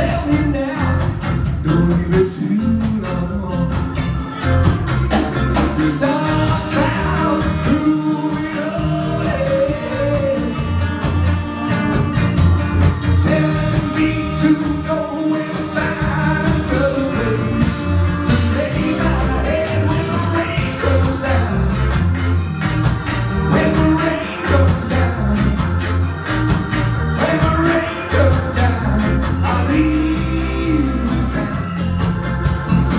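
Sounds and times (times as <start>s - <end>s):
lead singer singing: 0.0s - 4.4s, 5.6s - 12.2s, 12.9s - 22.1s, 23.3s - 26.3s, 27.0s - 32.0s
electric guitar: 0.0s - 32.9s
keyboards: 0.0s - 32.9s
steady drum beat: 0.0s - 32.9s.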